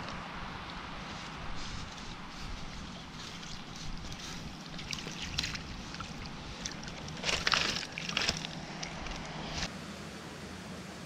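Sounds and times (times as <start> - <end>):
steady background hiss: 8.5 - 11.0.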